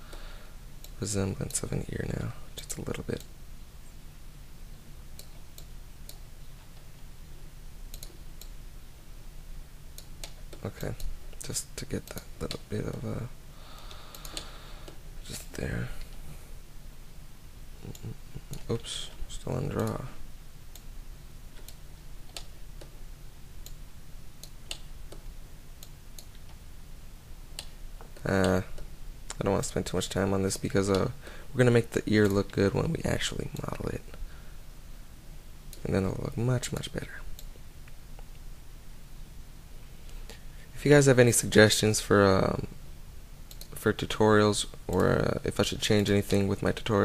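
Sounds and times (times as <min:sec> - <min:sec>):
low steady hum: 0:00.0 - 0:47.0
computer mouse clicks: 0:05.2 - 0:06.8, 0:07.9 - 0:08.6, 0:13.7 - 0:15.0, 0:19.7 - 0:20.0, 0:21.6 - 0:22.9, 0:24.4 - 0:25.2, 0:43.5 - 0:43.8
computer mouse and keyboard clicks: 0:13.8 - 0:15.0.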